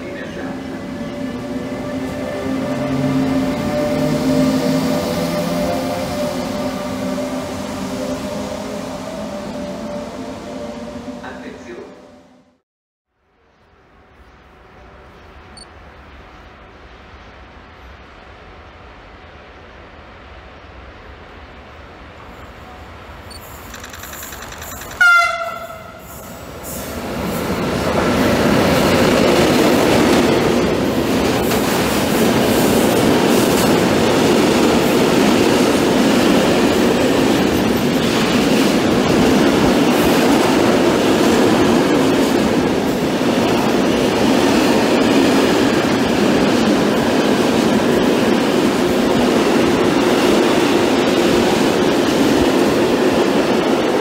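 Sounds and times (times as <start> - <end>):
locomotive horn blast: 25.0 - 26.1.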